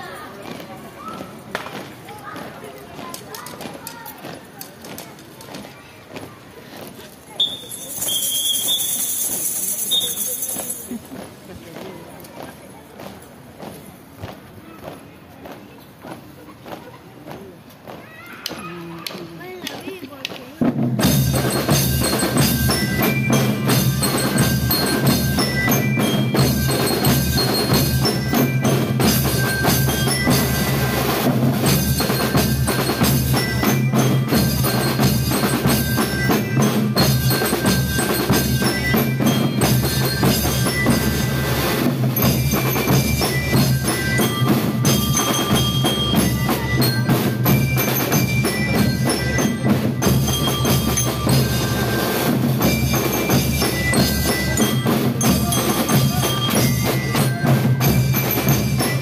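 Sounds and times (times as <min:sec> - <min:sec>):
steady drumming: 0:08.7 - 0:59.0
bell-lyre melody: 0:21.0 - 0:59.0.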